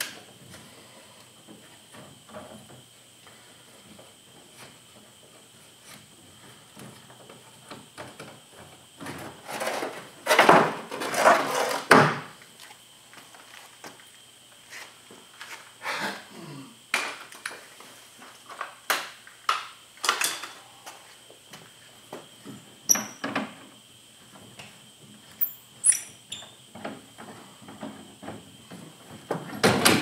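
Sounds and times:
rustling and scraping: 0:09.0 - 0:11.9, 0:12.6 - 0:16.1.

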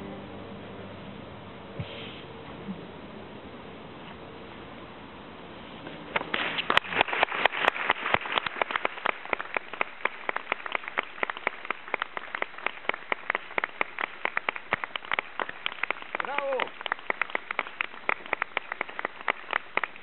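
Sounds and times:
audience applauding: 0:06.3 - 0:20.0.

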